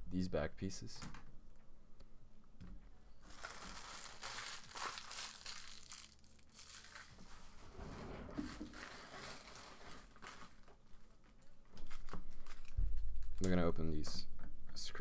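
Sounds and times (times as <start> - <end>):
thin plastic crinkling: 3.2 - 7.5, 8.5 - 13.5.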